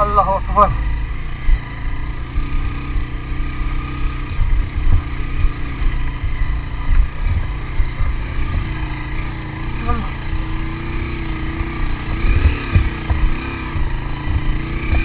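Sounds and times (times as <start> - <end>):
motorcycle engine pulling under load: 0.8 - 15.0
low thumps: 3.8 - 15.0.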